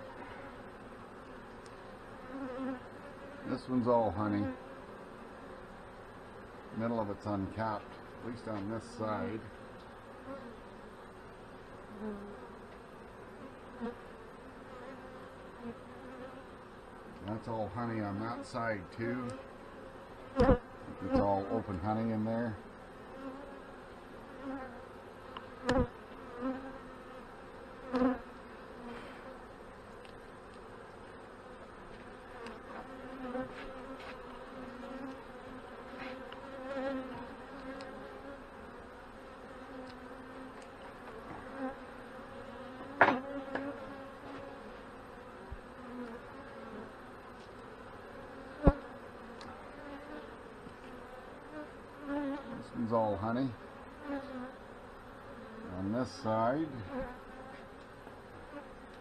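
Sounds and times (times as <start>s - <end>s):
bees buzzing: 0.0s - 59.0s.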